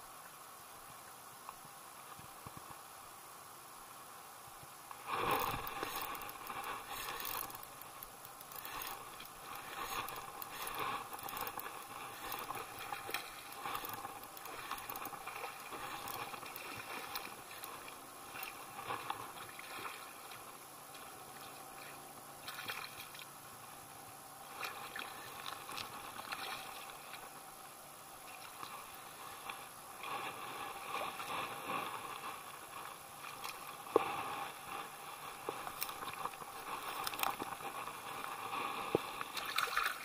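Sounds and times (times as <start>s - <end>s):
water sloshing and rustling: 3.8s - 40.0s
fish splashing in water: 39.2s - 40.0s.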